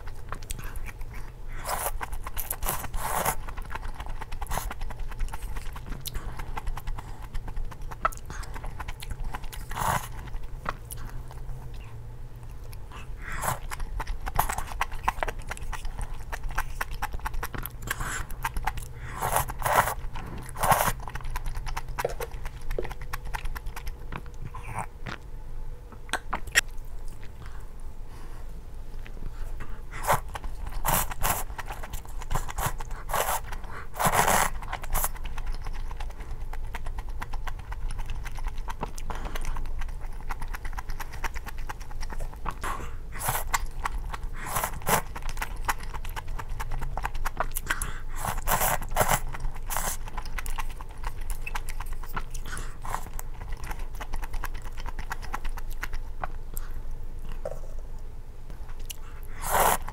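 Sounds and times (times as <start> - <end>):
chewing: 0.0 - 25.3, 25.9 - 28.3, 29.0 - 59.9
slurping noodles: 17.8 - 21.1, 29.9 - 35.2, 48.0 - 50.1, 59.4 - 59.9.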